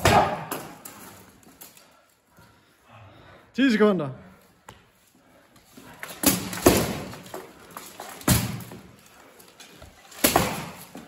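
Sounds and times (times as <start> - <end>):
training swords hitting armour: 0.0 - 1.0, 6.1 - 8.9, 10.0 - 11.0.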